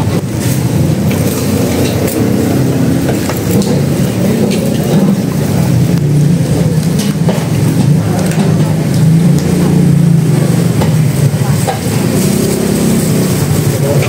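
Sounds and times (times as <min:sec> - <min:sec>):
street traffic rumble: 0:00.0 - 0:14.0
utensils clinking: 0:00.0 - 0:14.0.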